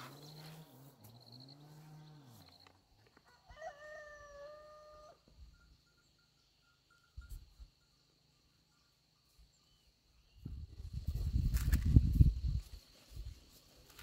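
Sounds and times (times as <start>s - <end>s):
rooster crowing: 3.2s - 5.3s.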